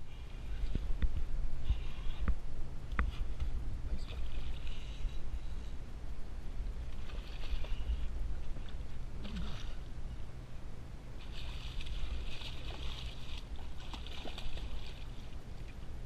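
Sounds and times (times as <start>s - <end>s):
wind rumble on microphone: 0.0s - 16.0s
fish thrashing and splashing: 11.2s - 15.3s.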